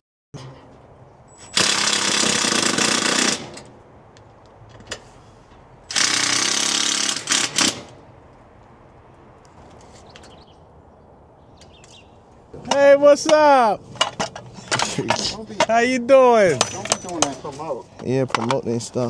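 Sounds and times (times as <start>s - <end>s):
impact driver driving fasteners: 5.9s - 8.0s.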